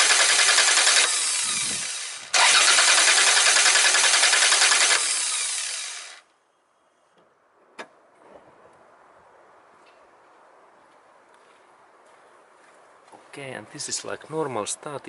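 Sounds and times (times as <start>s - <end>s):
starter motor cranking engine: 0.0s - 6.2s.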